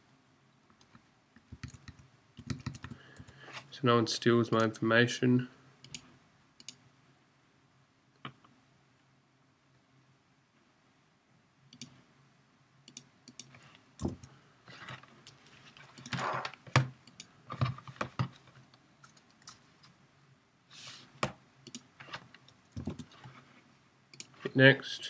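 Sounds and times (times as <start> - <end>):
keyboard typing: 1.4 - 3.4
mouse clicks: 5.8 - 6.8, 12.9 - 13.6.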